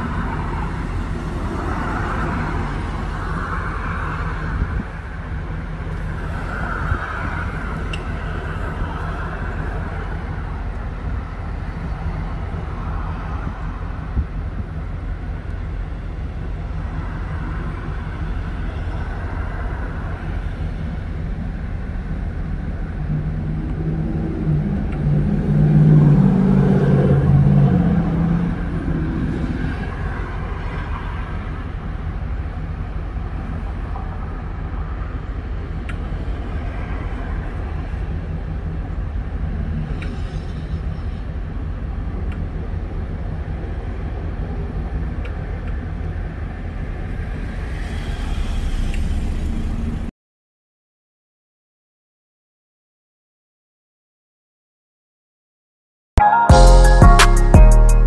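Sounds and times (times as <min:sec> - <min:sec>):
traffic rumble: 0:00.0 - 0:50.1
vehicle passing: 0:22.9 - 0:31.5, 0:46.8 - 0:50.1.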